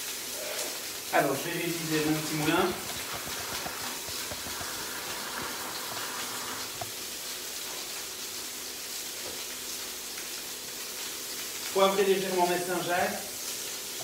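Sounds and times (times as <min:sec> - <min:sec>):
scallops sizzling in frying pan: 0:00.0 - 0:11.8, 0:13.2 - 0:14.0.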